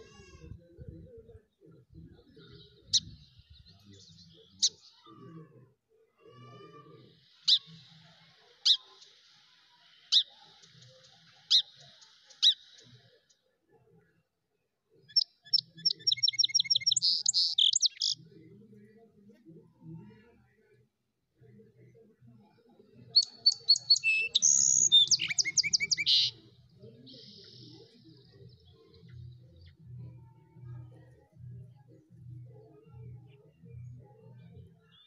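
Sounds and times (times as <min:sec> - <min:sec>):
bird chirping: 0:15.0 - 0:18.3, 0:23.0 - 0:35.0.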